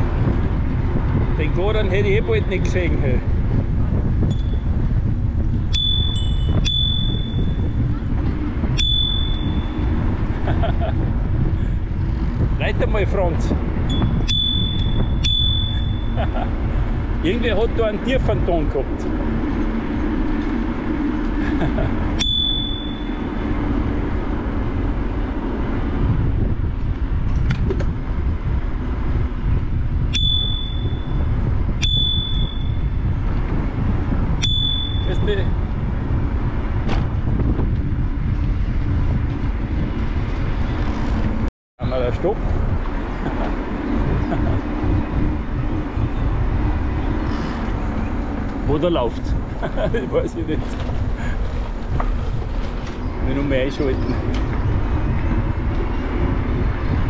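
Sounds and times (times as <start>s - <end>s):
wind rumble on microphone: 0.0s - 57.0s
bicycle bell dings: 5.7s - 7.7s, 8.7s - 9.8s, 13.9s - 16.2s, 22.2s - 23.3s, 30.1s - 33.0s, 34.4s - 35.2s.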